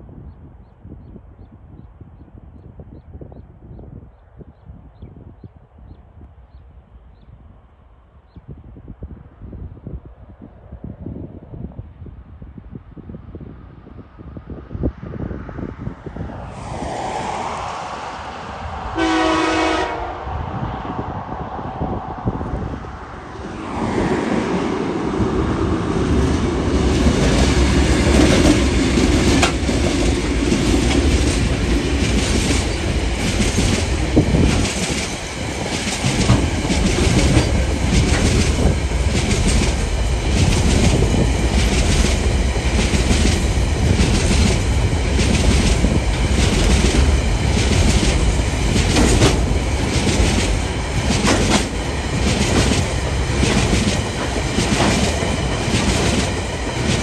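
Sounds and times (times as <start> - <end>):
low train rumble: 8.6 - 57.0
locomotive diesel engines: 16.6 - 57.0
train wheels clattering over rail joints: 27.0 - 57.0.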